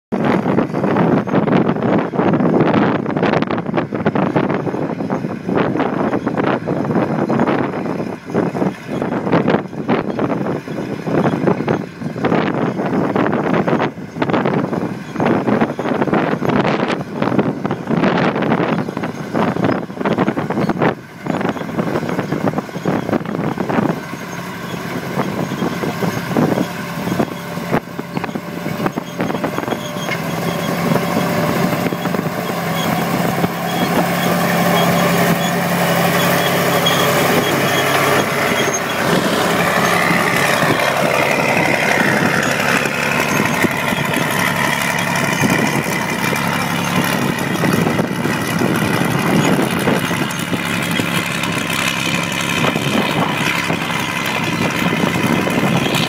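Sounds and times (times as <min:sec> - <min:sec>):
tractor diesel engine: 0:00.1 - 0:56.0
steel tracks clanking: 0:21.1 - 0:56.0.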